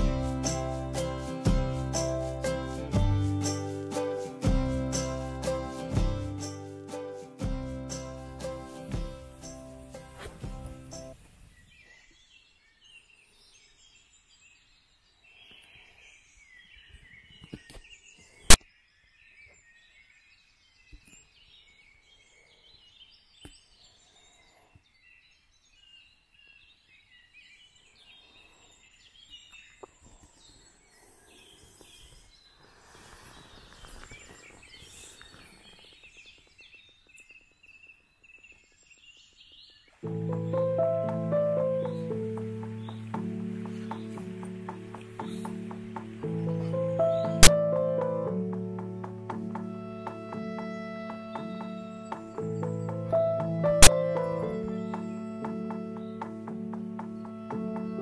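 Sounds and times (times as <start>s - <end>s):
music: 0.0s - 11.2s, 40.0s - 58.0s
small birds chirping: 9.2s - 58.0s.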